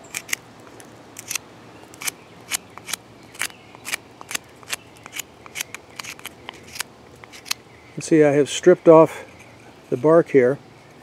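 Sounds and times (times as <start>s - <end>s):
knife scraping bark off stick: 1.2s - 7.6s.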